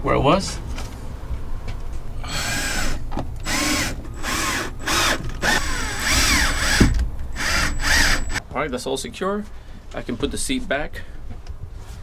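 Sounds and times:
cordless drill driving screws: 2.3 - 8.4.

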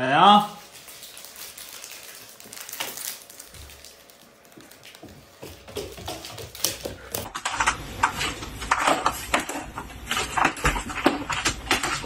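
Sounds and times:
dog claws clicking on wooden floor: 4.6 - 7.4.

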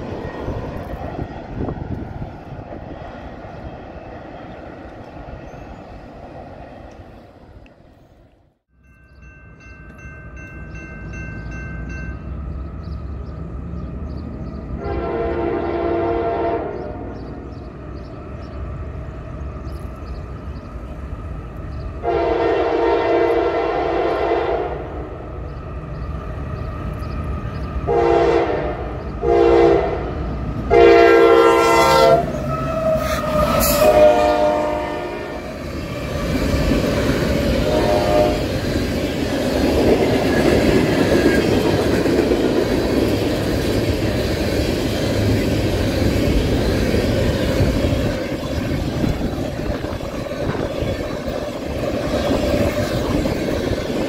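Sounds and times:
train rumbling past: 0.0 - 54.0
locomotive horn blasts: 14.8 - 17.2, 22.0 - 25.0, 27.9 - 35.5, 37.6 - 38.5.

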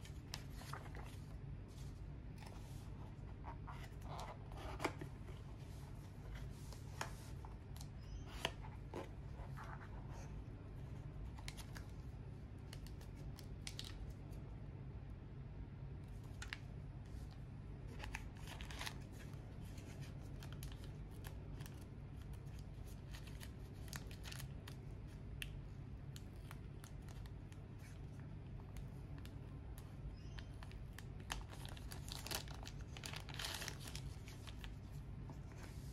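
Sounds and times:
steady low hum: 0.0 - 35.9
thin wrapping sheet crinkling: 30.3 - 35.9.

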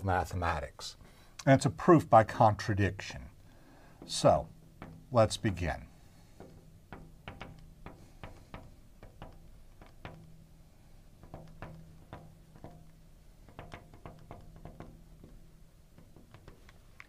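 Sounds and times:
marker tapping and scraping on glass: 4.0 - 17.0.

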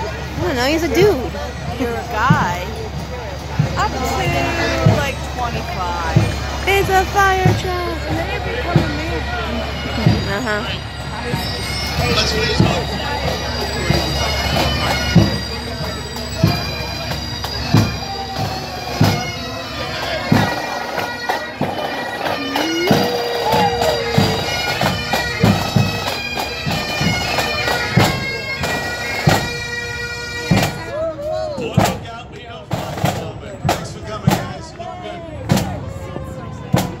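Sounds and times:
bagpipes with drones: 0.0 - 31.1
drums beating: 0.0 - 37.0.

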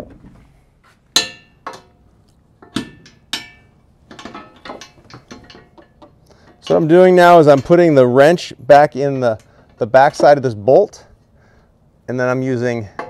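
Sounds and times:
metal wrenches clinking: 2.6 - 10.4.

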